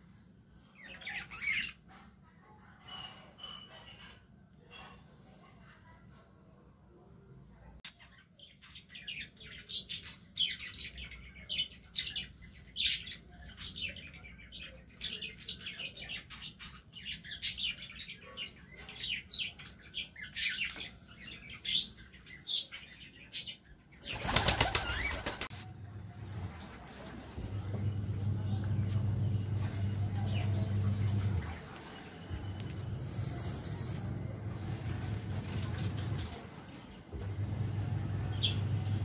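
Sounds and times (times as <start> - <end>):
pigeon wings flapping: 24.1 - 25.6.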